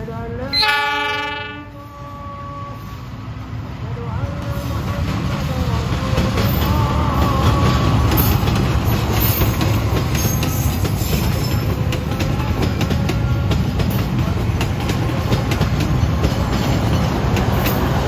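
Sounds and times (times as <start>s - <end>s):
train coaches rumbling past: 0.0s - 18.0s
wheels clacking on rails: 3.9s - 18.0s.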